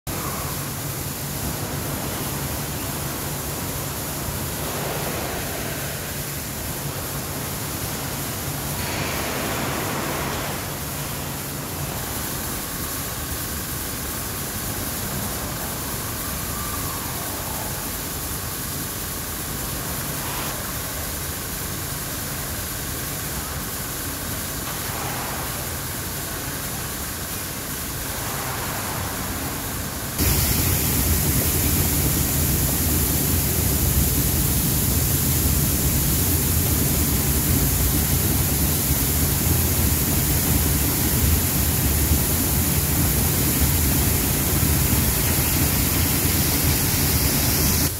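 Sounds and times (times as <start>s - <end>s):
grain dryer rushing and humming: 30.2s - 47.9s
grain pouring down metal chute: 30.2s - 47.9s.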